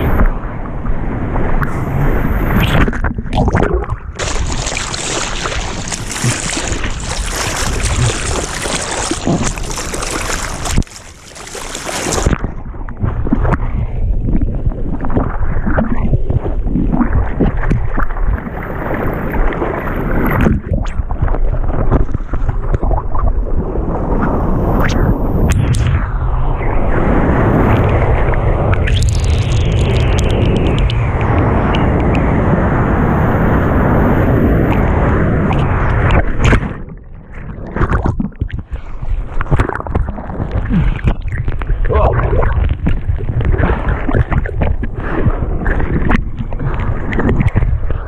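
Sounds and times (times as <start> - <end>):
wind buffeting microphone: 0.0 - 10.9, 12.0 - 48.0
water rushing and splashing: 0.0 - 13.6, 26.9 - 48.0.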